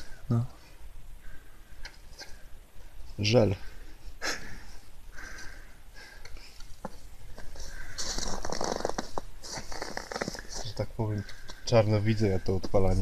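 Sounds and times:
rustling and crackling handling noise: 0:06.2 - 0:11.6.

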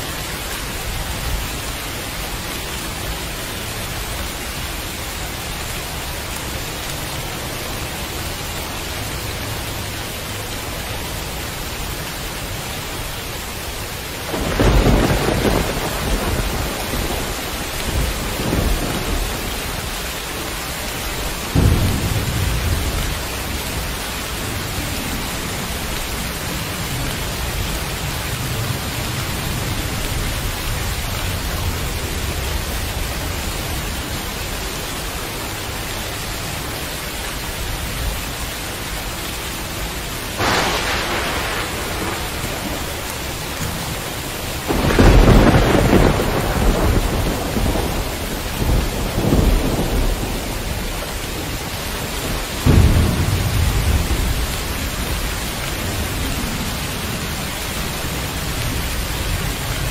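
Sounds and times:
heavy rain: 0:00.0 - 0:59.9
thunder rumble: 0:14.0 - 0:34.0, 0:40.3 - 0:59.9.

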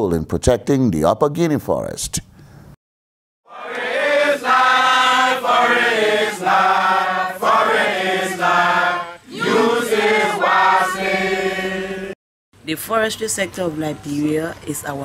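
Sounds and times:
voices chanting in held notes: 0:03.5 - 0:12.2.

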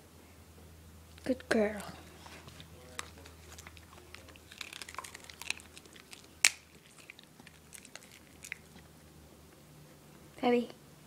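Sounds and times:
dog chewing crunchy food: 0:01.3 - 0:09.2.

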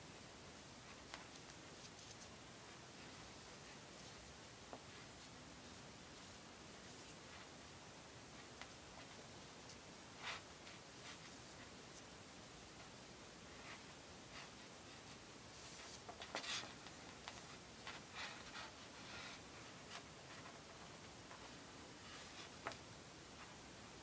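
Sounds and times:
steady hiss: 0:00.0 - 0:24.0
rustling of cords handled: 0:13.6 - 0:23.6.

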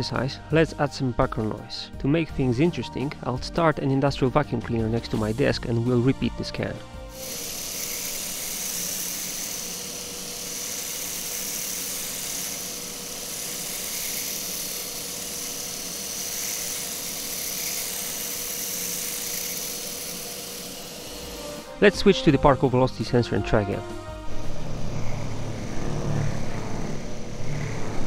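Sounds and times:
electric shaver running: 0:06.3 - 0:21.9, 0:24.1 - 0:28.0
industrial vacuum cleaner running: 0:07.0 - 0:23.0, 0:24.0 - 0:28.0.

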